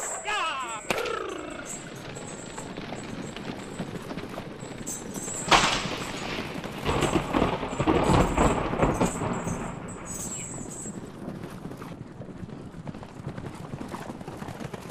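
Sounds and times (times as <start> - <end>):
low thunder rumble: 0.9 - 11.2
loud thunderclap: 5.4 - 10.7.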